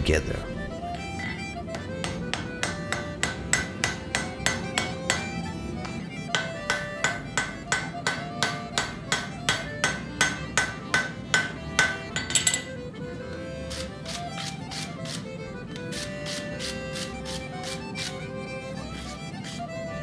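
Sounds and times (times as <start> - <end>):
hammer striking metal on anvil: 2.0 - 5.2, 6.3 - 12.8.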